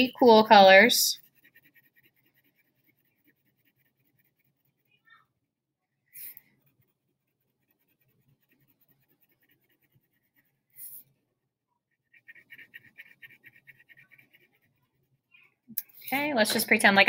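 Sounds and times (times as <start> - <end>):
crayon scratching on paper: 0.0 - 5.0, 6.2 - 11.0, 12.1 - 15.3.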